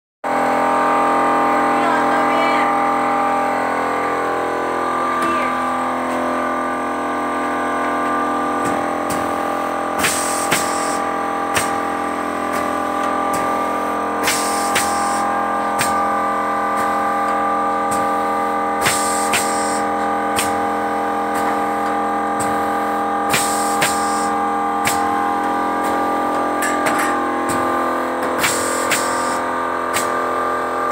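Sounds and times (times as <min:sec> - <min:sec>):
packing machine clacking: 0:08.6 - 0:22.6, 0:23.2 - 0:30.2
pneumatic air blasts hissing: 0:09.1 - 0:26.4, 0:27.4 - 0:30.2.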